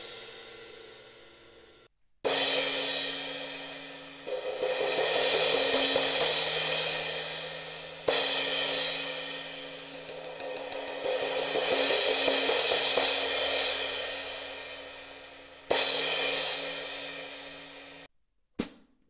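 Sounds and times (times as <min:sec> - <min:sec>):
crash cymbal struck with drumstick: 0:02.3 - 0:15.0.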